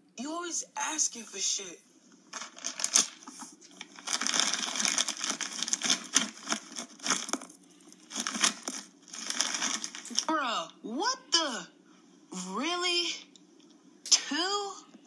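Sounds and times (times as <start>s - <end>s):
snack bag crinkling: 2.3s - 10.3s.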